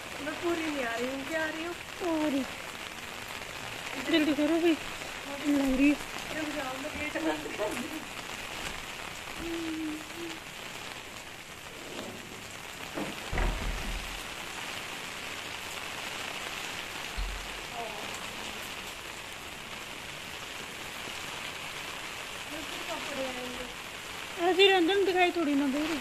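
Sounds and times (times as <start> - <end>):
rain on concrete paving: 0.0 - 26.0
dull low thumps: 13.1 - 14.2, 17.1 - 17.7.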